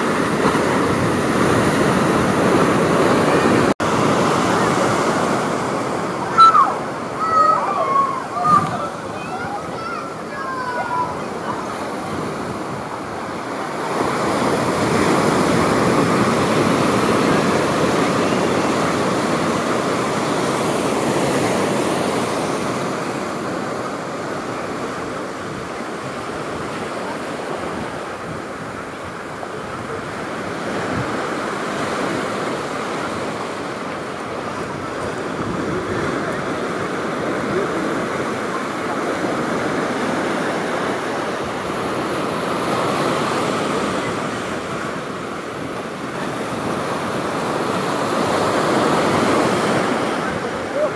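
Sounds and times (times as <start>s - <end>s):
ocean surf breaking on beach: 0.0s - 50.9s.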